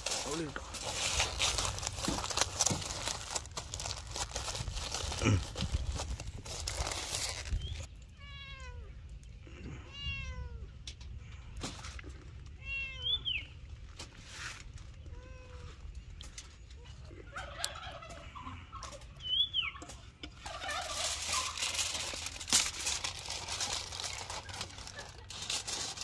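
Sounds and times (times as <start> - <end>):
aluminium foil crinkling: 0.0 - 7.9, 20.4 - 26.0.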